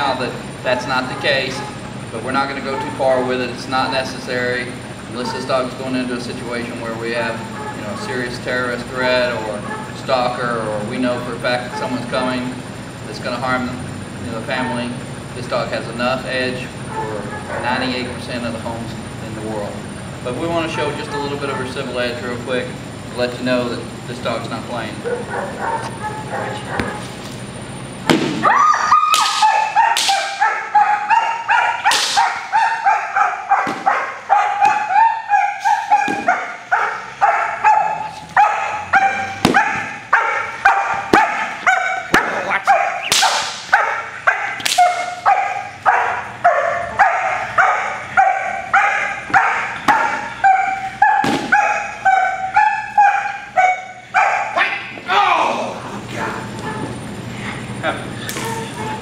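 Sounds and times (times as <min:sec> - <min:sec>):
dog barking aggressively: 0:16.9 - 0:17.9, 0:25.0 - 0:27.2, 0:29.3 - 0:54.9
sharp cracks: 0:29.1 - 0:30.4, 0:31.9 - 0:32.4, 0:43.0 - 0:43.7, 0:44.6 - 0:45.2.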